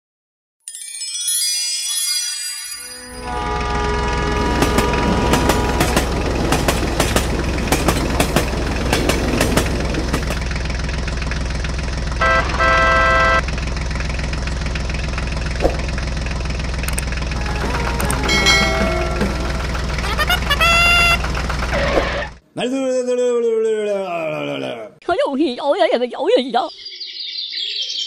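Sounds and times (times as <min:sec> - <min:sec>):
horn tooting: 0:03.0 - 0:10.4, 0:12.1 - 0:13.5, 0:17.2 - 0:22.4
tractor engine chugging: 0:03.1 - 0:22.4.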